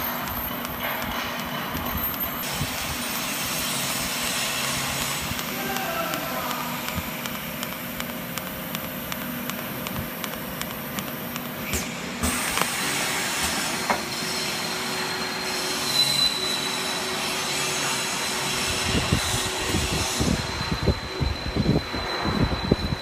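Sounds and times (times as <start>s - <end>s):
machine clicks: 0.0s - 12.8s
welding arc hissing and crackling: 0.0s - 23.0s.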